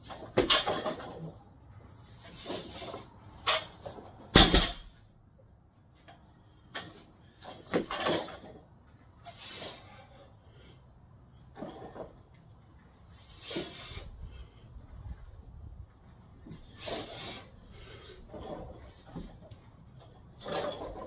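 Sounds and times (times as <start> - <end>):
barbell thudding on rubber floor: 4.3 - 4.9.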